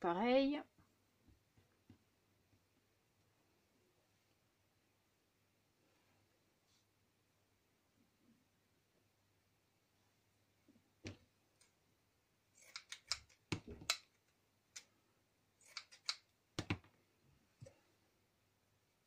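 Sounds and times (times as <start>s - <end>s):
scissors snipping: 12.6s - 14.1s, 15.6s - 16.3s.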